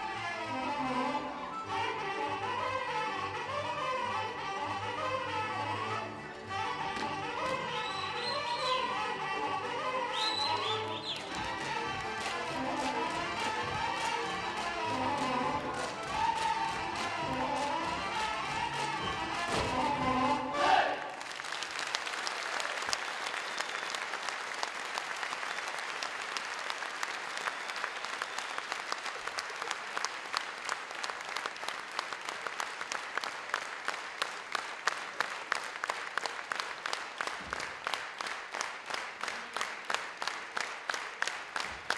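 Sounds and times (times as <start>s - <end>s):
rhythmic clapping in unison: 6.3s - 41.9s
audience applauding: 9.9s - 20.0s, 21.0s - 41.9s.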